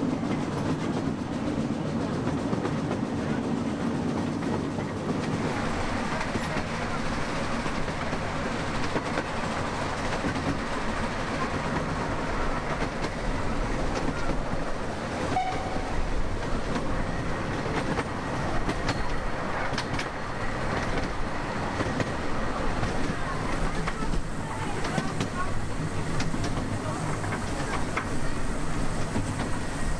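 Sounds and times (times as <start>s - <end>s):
train wheels rumbling on track: 0.0s - 29.9s.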